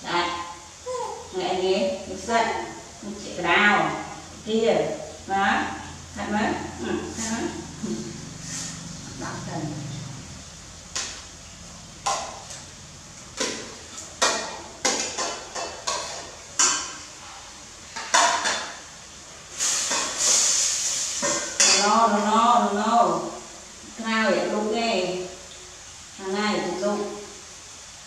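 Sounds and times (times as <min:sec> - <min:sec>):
short hiss: 0:19.5 - 0:21.6.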